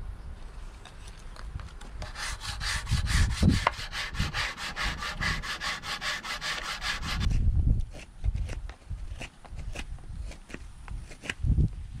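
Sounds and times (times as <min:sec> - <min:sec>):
sanding wood by hand: 0:02.0 - 0:07.3.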